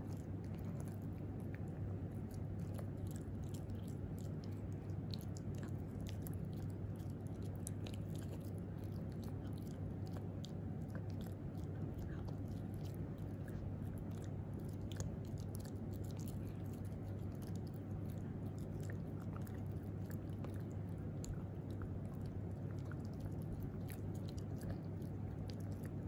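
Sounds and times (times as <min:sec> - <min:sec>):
low hum: 0:00.0 - 0:26.0
puppy chewing dog chew: 0:00.0 - 0:26.0.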